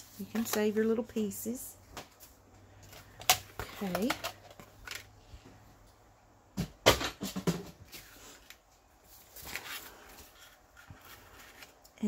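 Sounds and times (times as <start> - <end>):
paper rustling: 7.9 - 11.8.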